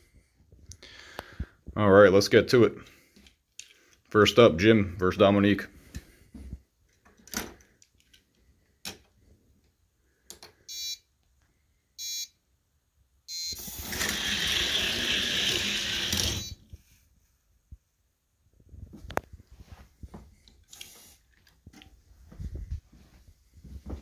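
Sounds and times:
short electronic beeps: 0:10.7 - 0:11.0, 0:12.0 - 0:12.3, 0:13.3 - 0:13.6, 0:16.4 - 0:16.6
toy cars rolling down track: 0:13.6 - 0:16.6.

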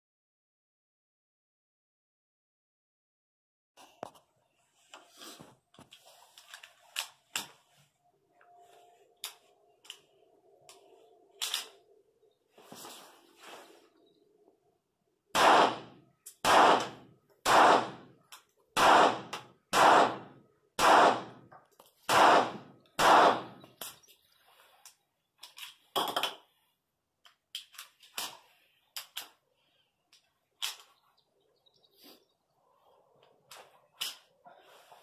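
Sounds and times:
pistol handling clicks: 0:11.4 - 0:11.8, 0:30.6 - 0:30.9
pistol shots echoing: 0:15.3 - 0:18.2, 0:18.8 - 0:21.5, 0:22.1 - 0:23.7.

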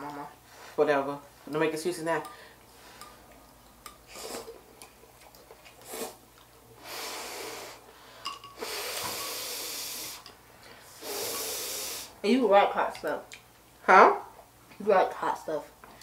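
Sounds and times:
noodle slurping: 0:04.1 - 0:04.6, 0:05.2 - 0:06.2
hissing breaths through mouth: 0:08.6 - 0:12.2.

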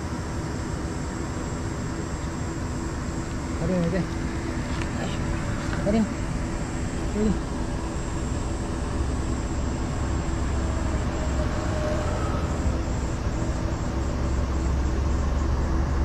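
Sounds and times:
high steady whine: 0:00.0 - 0:16.0.

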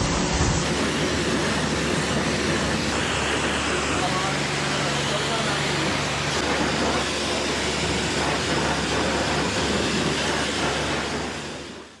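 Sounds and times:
pressure washer spraying water: 0:00.0 - 0:00.8.

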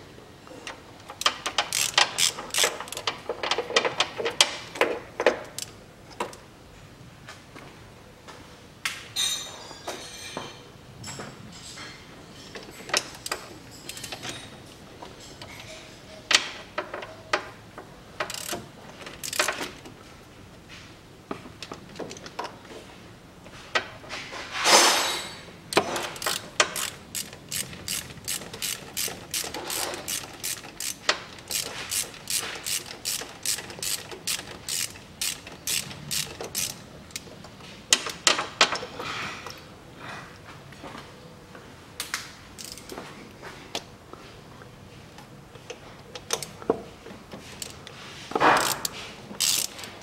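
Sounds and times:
ratchet wrench clicking: 0:01.2 - 0:03.1, 0:18.2 - 0:19.8, 0:25.7 - 0:37.2, 0:42.6 - 0:42.9, 0:48.5 - 0:50.0
scattered clicks and knocks: 0:25.7 - 0:38.9.

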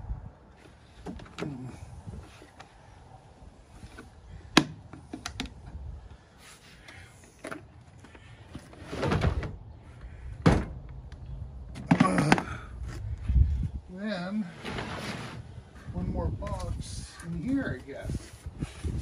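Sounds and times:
case thud and knock: 0:10.4 - 0:10.8.

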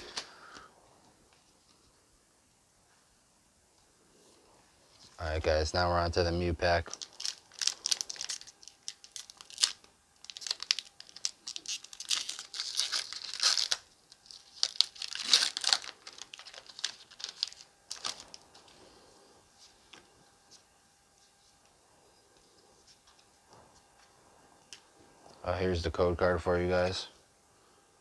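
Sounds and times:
foil wrapper tearing and crinkling: 0:06.8 - 0:18.5.

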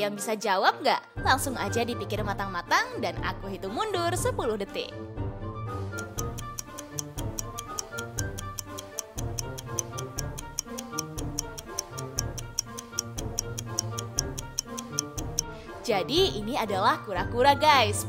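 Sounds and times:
cheerful background music: 0:00.0 - 0:18.0
countdown timer ticking: 0:05.8 - 0:16.6.

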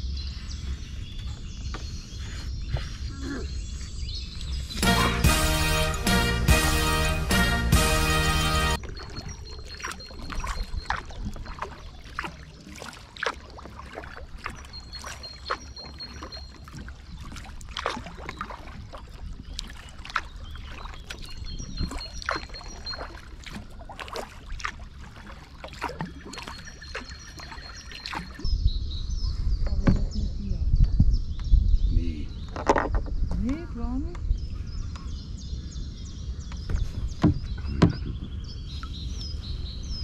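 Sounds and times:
paddle splashing in water: 0:03.9 - 0:28.5.

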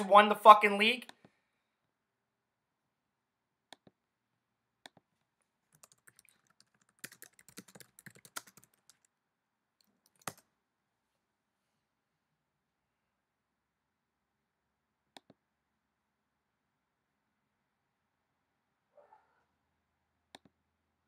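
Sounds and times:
typing on computer keyboard: 0:05.7 - 0:09.1, 0:09.9 - 0:10.4.

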